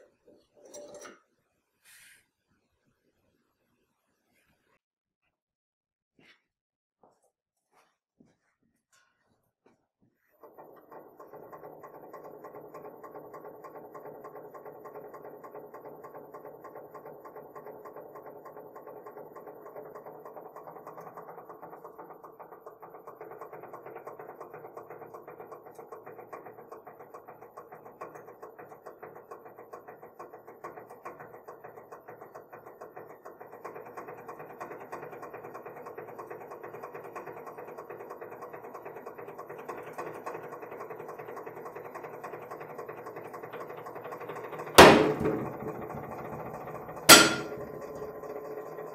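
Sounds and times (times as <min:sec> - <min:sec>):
hydraulic pump running: 0:10.3 - 0:48.9.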